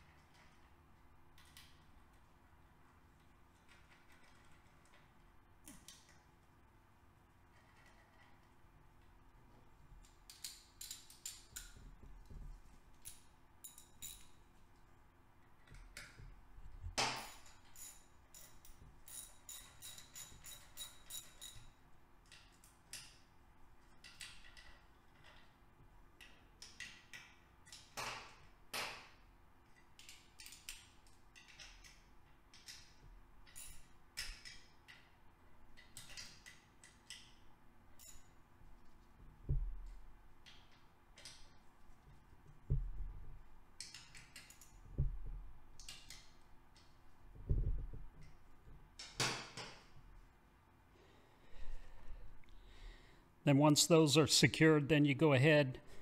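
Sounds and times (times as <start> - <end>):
socket ratchet clicking: 17.2 - 23.2
dull low knocks: 42.7 - 43.3.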